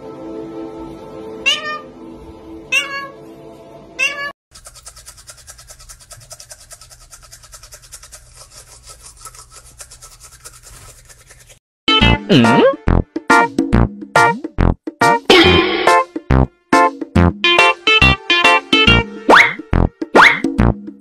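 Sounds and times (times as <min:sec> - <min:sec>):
parrot meow-like calls: 0:01.4 - 0:01.9, 0:02.7 - 0:03.2
toothbrush scrubbing teeth: 0:04.5 - 0:11.6.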